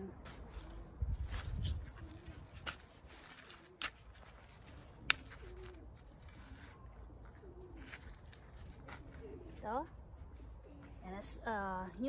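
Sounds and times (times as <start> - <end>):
pigeon cooing: 5.2 - 9.7.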